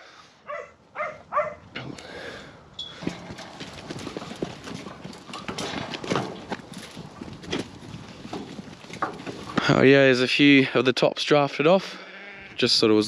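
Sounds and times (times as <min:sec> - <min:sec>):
dog barking: 0:00.5 - 0:01.6
metal sides rattling: 0:02.8 - 0:09.9
hooves clattering on metal: 0:02.8 - 0:10.5.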